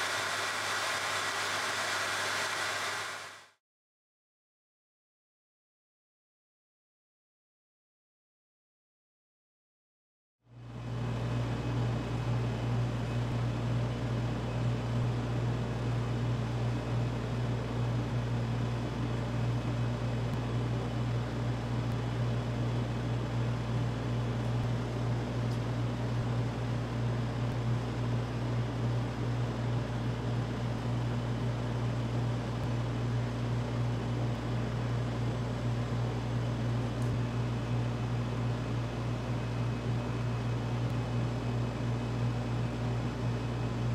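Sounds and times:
small motor humming: 0.0s - 3.5s.

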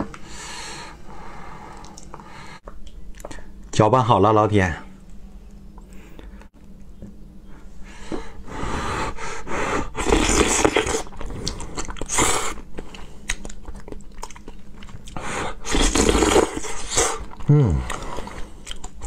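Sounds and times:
chewing: 10.6s - 15.2s, 15.8s - 19.0s.

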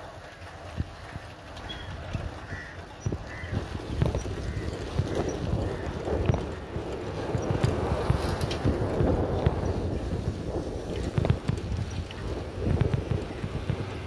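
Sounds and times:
wind buffeting microphone: 0.0s - 14.0s
bicycle clicks and rattles: 4.0s - 9.7s, 10.9s - 14.0s.

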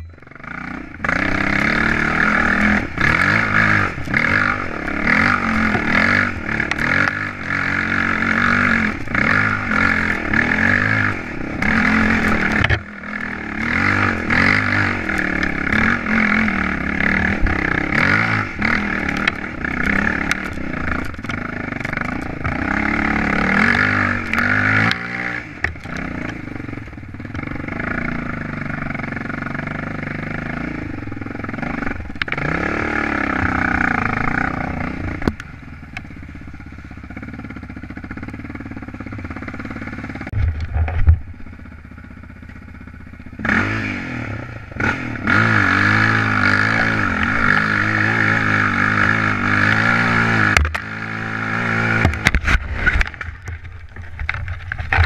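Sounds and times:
vehicle engine climbing: 0.0s - 55.0s.

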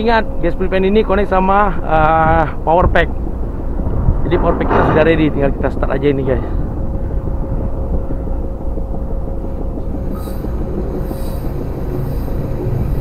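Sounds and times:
faint steady hum: 0.0s - 13.0s
low machinery rumble: 0.0s - 13.0s
hissing bursts: 9.9s - 13.0s.

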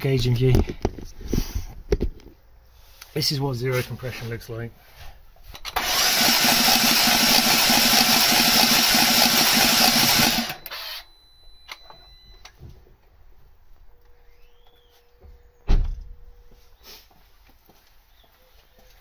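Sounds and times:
engine cranking on starter motor: 5.6s - 11.1s.

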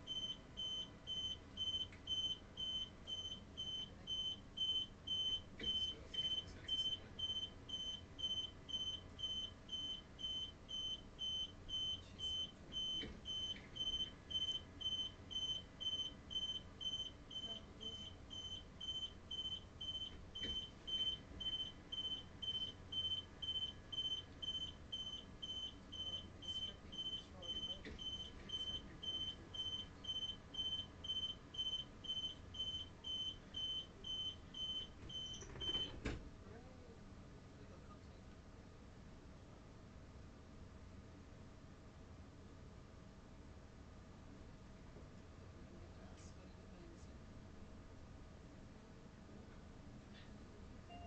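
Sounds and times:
train door warning beeps: 0.0s - 36.1s.

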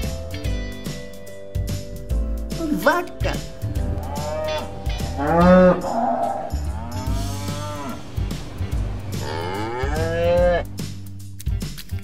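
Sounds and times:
cows mooing: 3.9s - 10.8s.

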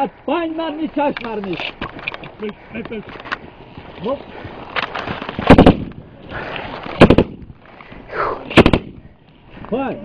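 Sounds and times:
automatic gunfire bursts: 7.0s - 7.4s, 8.6s - 8.9s.

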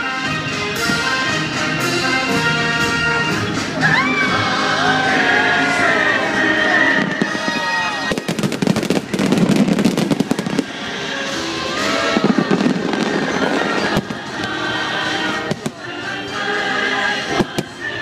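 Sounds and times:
show music: 0.0s - 18.0s
fireworks bursting and crackling: 6.5s - 18.0s.

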